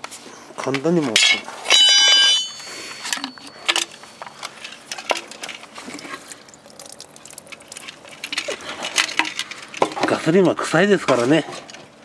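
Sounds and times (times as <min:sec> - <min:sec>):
liquid trickling and dripping: 0:04.9 - 0:09.8
liquid pouring into pan: 0:05.2 - 0:09.4.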